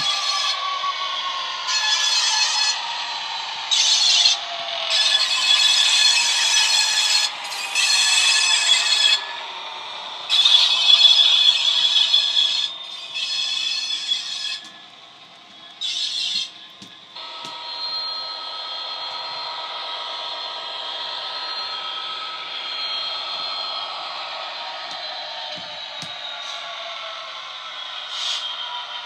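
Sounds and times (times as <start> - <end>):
model locomotive diesel engine: 0.0 - 29.0
scraping hiss bursts: 28.1 - 28.5.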